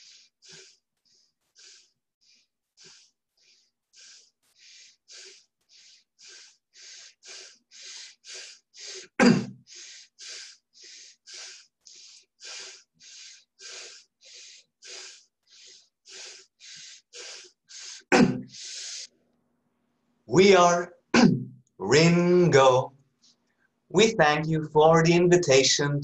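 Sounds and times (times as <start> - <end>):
person breathing quickly: 0.0 - 19.2.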